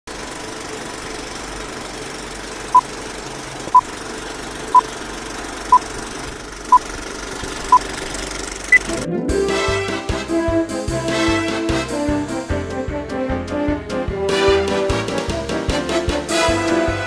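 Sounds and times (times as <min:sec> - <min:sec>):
film projector rattle: 0:00.1 - 0:09.0.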